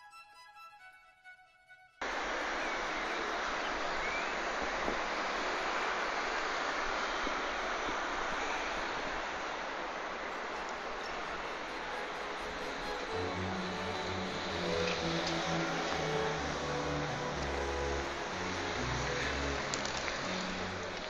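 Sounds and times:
road traffic: 9.2 - 21.0
soft violin music: 11.1 - 21.0.

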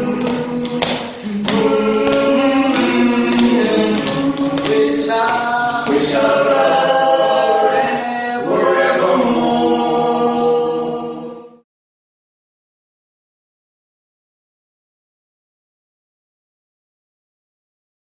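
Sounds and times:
percussive hits: 0.0 - 7.0
choir singing in harmony: 0.0 - 11.6.

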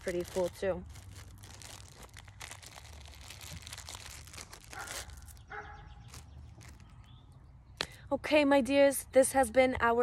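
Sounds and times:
plastic sleeve crinkling: 0.0 - 7.1
dog barking: 4.8 - 6.0.

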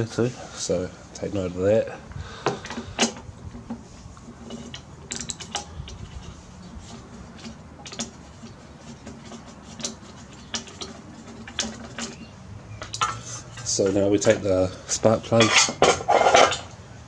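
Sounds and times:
hand tools clicking on metal: 4.4 - 12.2.

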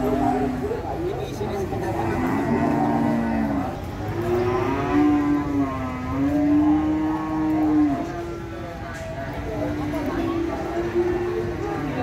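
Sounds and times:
cow mooing: 1.9 - 8.4.

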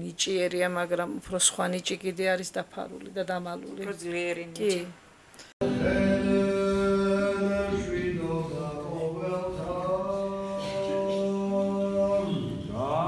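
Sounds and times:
unaccompanied chanting: 5.6 - 13.0.

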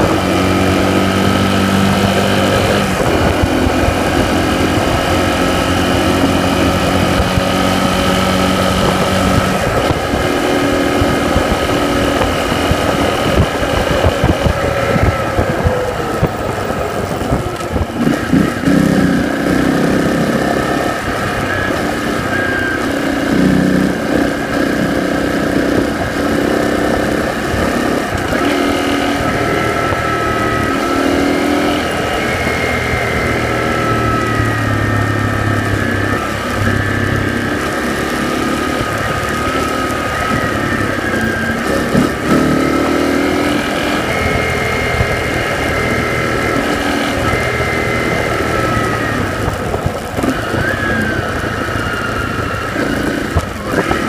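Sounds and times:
whine rising with speed: 0.0 - 19.6
tyres on gravel road: 0.0 - 54.0
vehicle engine running: 0.0 - 54.0.

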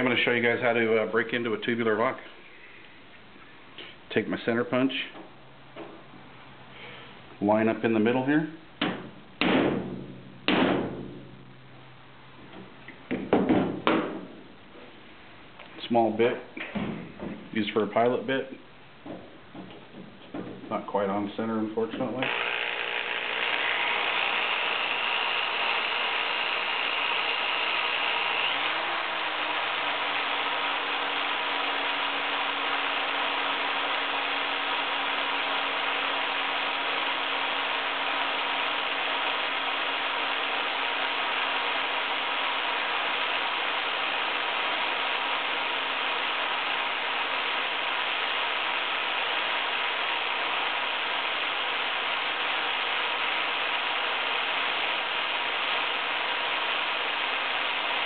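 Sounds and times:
electric drill boring into metal: 22.2 - 58.0.

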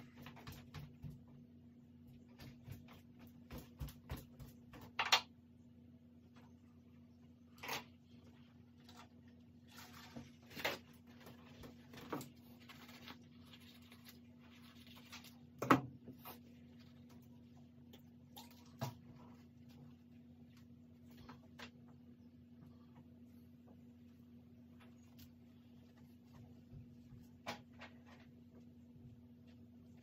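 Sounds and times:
steady low hum: 0.0 - 30.0
paper towels rustling: 8.1 - 15.6.

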